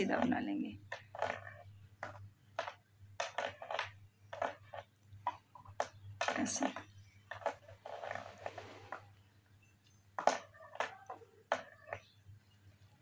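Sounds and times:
knitting needles clicking: 0:00.0 - 0:09.1.

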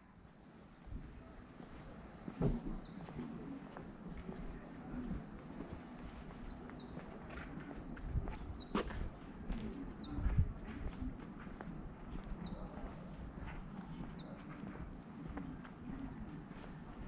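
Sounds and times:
outdoor background noise: 0:00.0 - 0:17.0
walking footsteps thudding: 0:02.3 - 0:03.2, 0:08.0 - 0:09.6
small birds chirping: 0:02.3 - 0:05.0, 0:05.6 - 0:17.0.

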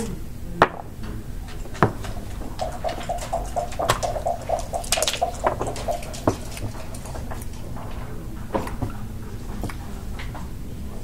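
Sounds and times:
checkers clacking on board: 0:00.6 - 0:11.0
dice rattling in cup: 0:01.6 - 0:07.8.

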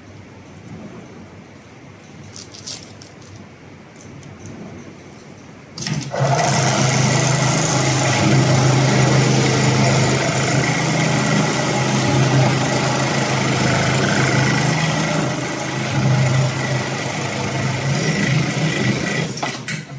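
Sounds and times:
sewing machine running at high speed: 0:05.8 - 0:19.6.

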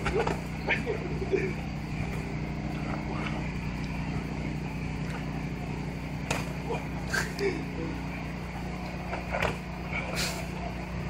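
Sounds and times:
low motor hum: 0:00.0 - 0:11.0
boxing glove smack: 0:06.3 - 0:06.6.

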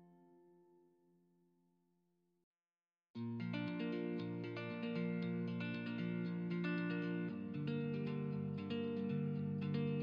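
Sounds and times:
instrumental music held notes: 0:03.2 - 0:10.0.

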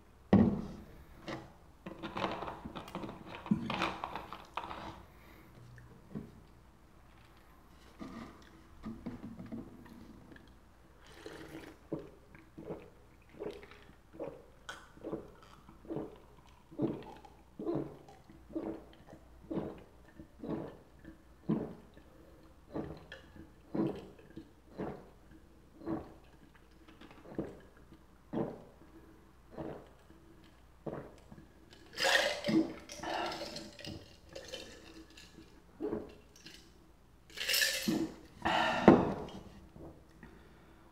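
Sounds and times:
person gulping: 0:02.9 - 0:06.2, 0:08.0 - 0:36.6, 0:37.3 - 0:40.7
breaths: 0:05.1 - 0:05.7, 0:38.4 - 0:39.4, 0:40.2 - 0:40.9
person slurping: 0:11.0 - 0:26.4, 0:29.5 - 0:30.1, 0:30.9 - 0:36.3, 0:37.5 - 0:39.6.

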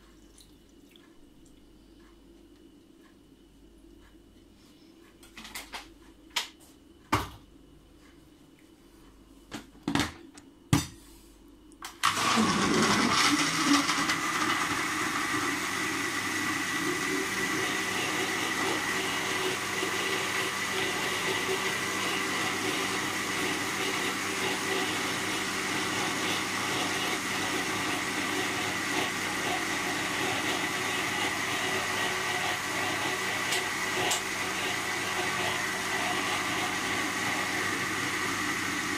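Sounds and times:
blender motor whining: 0:12.0 - 0:38.9.

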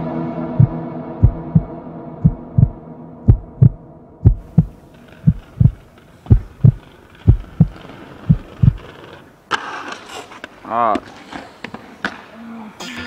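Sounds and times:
heartbeat thumps: 0:00.5 - 0:08.8.

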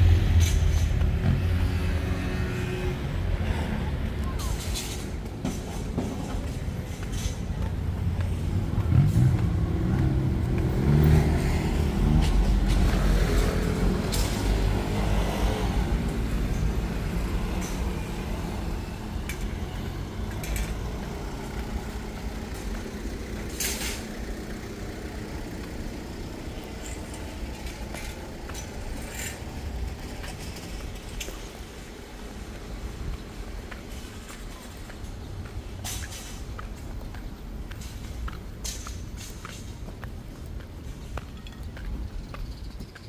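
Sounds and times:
vehicle engine rumbling: 0:00.0 - 0:43.0.

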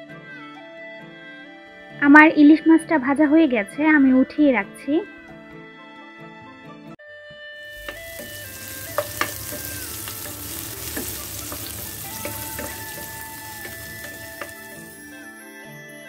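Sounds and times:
onions sizzling in hot oil: 0:07.6 - 0:15.3
wooden spatula knocking on pan: 0:07.7 - 0:15.0.

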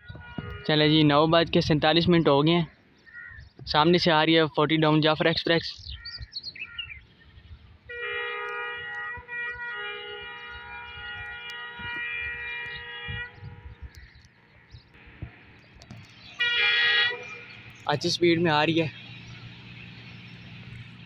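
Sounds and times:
locomotive horn blasts: 0:00.0 - 0:01.0, 0:07.9 - 0:14.0, 0:16.4 - 0:17.8.

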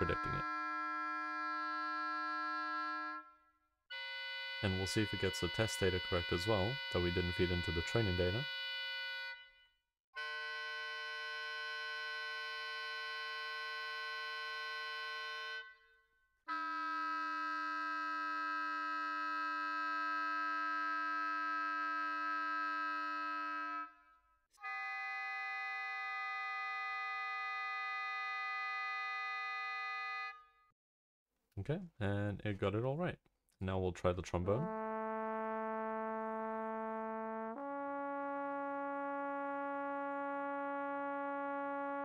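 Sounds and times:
oboe multiphonics: 0:00.0 - 0:09.6, 0:10.2 - 0:15.9, 0:16.5 - 0:30.4.

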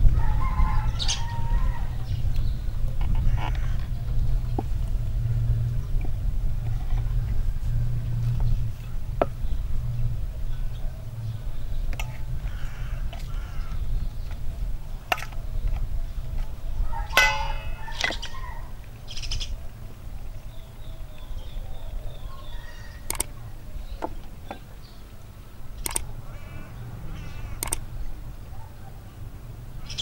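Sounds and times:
metal fork clinking on bowl: 0:17.2 - 0:18.2.

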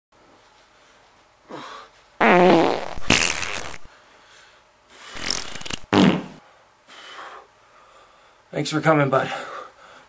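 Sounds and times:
comic fart sound effect: 0:02.2 - 0:03.9, 0:05.2 - 0:06.4.

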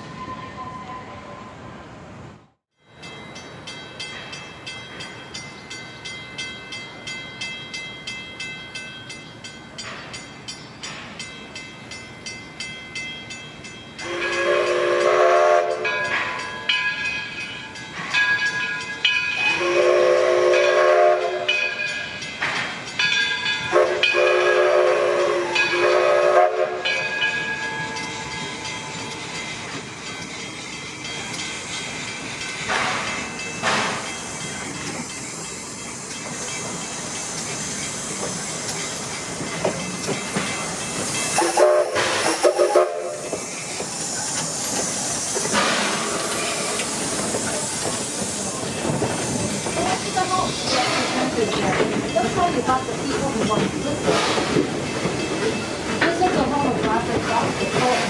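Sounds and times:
steam whistle blasts: 0:14.0 - 0:15.9, 0:19.4 - 0:21.6, 0:23.7 - 0:27.1, 0:41.4 - 0:43.4
steam engine rhythmic beat: 0:17.9 - 0:58.0.

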